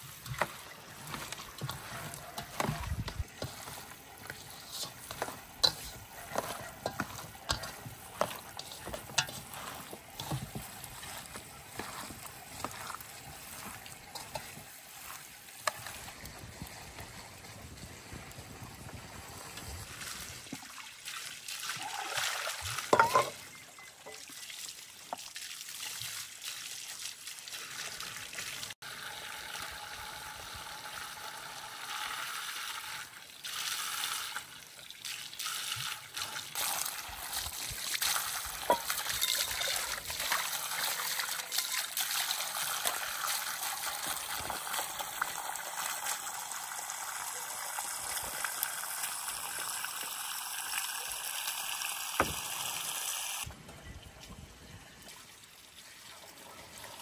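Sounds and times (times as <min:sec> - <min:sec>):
water splashing onto stones: 0:00.0 - 0:17.2, 0:24.1 - 0:28.8, 0:33.0 - 0:53.5.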